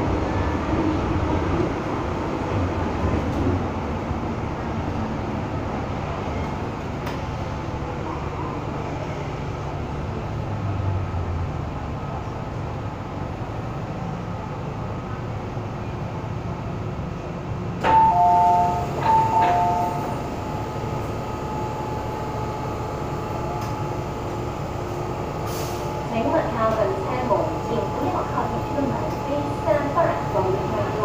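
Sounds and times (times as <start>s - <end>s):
train carriage rumble: 0.0s - 31.0s
click: 6.4s - 7.2s, 23.6s - 23.8s.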